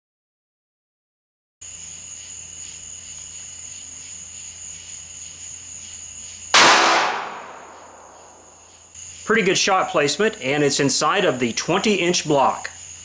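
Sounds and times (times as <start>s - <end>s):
crickets chirring: 1.6s - 13.0s
revolver gunshot echoing: 6.5s - 8.4s.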